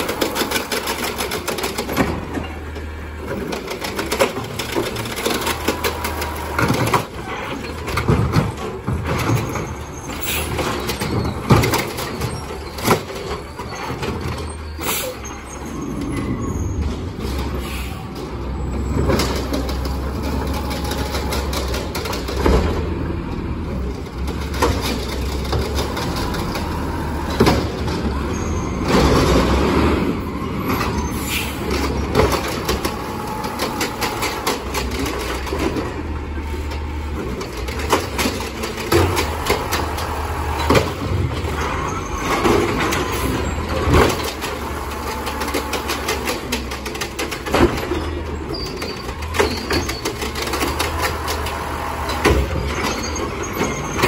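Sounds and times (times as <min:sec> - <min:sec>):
hydraulic arm lifting carts: 0:00.0 - 0:54.0
metal clanks from arm and carts: 0:00.0 - 0:54.0
truck engine humming: 0:17.0 - 0:54.0.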